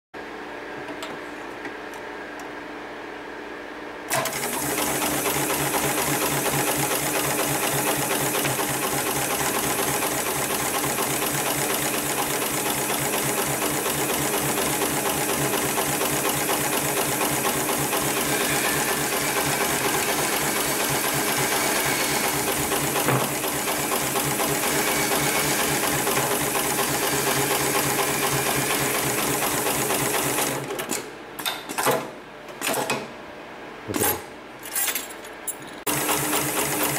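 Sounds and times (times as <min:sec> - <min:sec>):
sewing machine stitching: 0:04.1 - 0:31.1, 0:35.9 - 0:36.9
sewing machine clicks: 0:04.1 - 0:32.0, 0:35.9 - 0:36.9.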